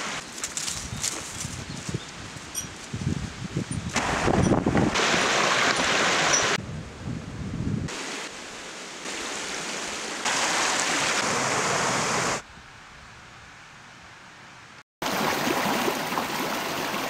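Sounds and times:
stream splashing over rocks: 4.0s - 6.6s, 7.9s - 12.4s, 15.0s - 17.0s.

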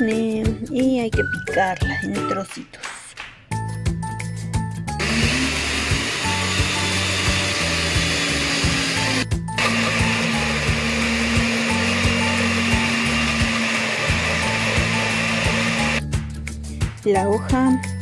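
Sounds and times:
background music with beat: 0.0s - 18.0s
blender running: 5.0s - 16.0s.

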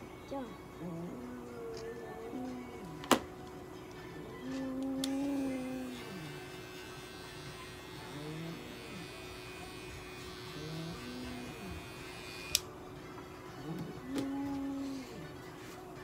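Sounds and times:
pet clipper buzzing: 4.8s - 12.7s.

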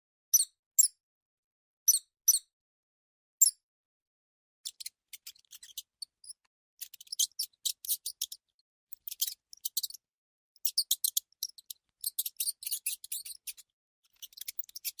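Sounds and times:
high-pitched mouse squeaks: 0.3s - 1.0s, 1.9s - 2.5s, 3.4s - 3.6s, 4.6s - 15.0s.

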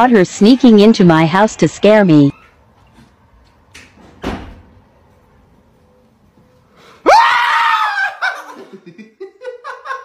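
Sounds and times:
high-pitched scream: 7.0s - 8.2s
person laughing: 8.0s - 10.0s.

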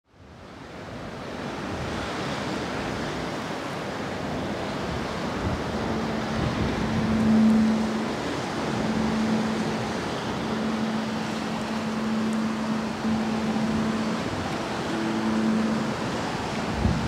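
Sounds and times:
wind: 0.0s - 17.0s
sea surf: 0.2s - 17.0s
low steady note: 5.3s - 17.0s.

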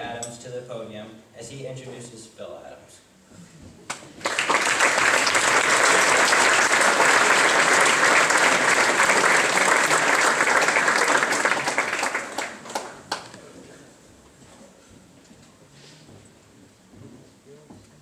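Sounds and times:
audience applauding: 3.9s - 13.4s.

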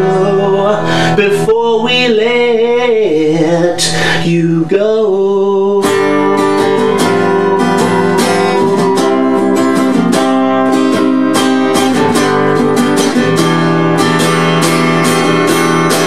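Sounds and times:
acoustic guitar strumming: 0.0s - 16.0s.

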